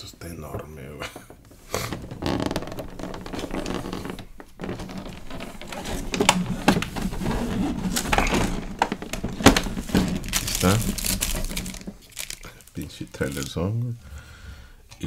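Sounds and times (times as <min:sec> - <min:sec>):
plastic tray rubbing and scraping: 0:01.6 - 0:13.5.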